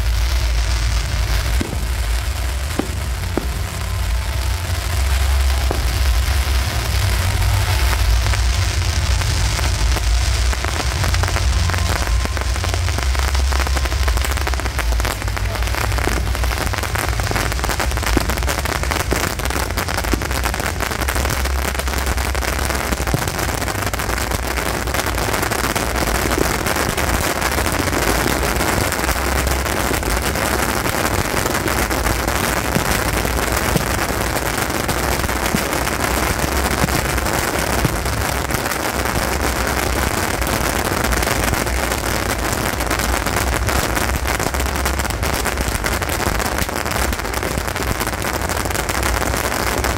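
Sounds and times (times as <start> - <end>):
low rumble: 0.0 - 25.2
bottle rockets whizzing and popping: 1.5 - 4.0.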